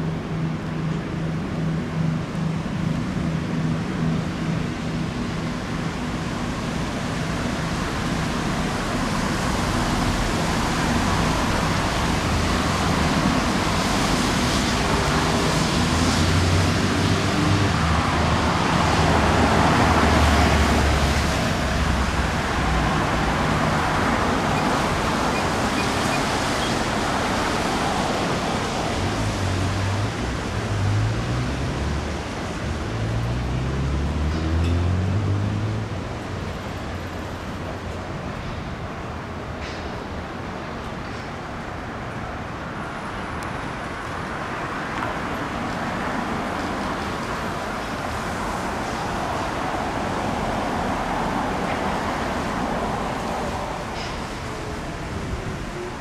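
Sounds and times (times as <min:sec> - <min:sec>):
rushing wash and wind: 0:00.0 - 0:56.0
boat engines humming: 0:00.1 - 0:31.4.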